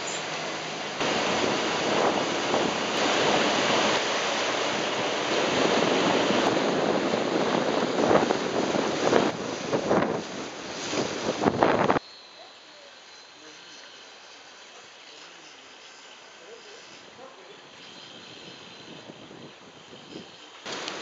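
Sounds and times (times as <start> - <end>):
water splashing along hull: 0.0 - 12.0, 17.2 - 21.0
wind buffeting microphone: 0.0 - 12.0, 17.9 - 21.0.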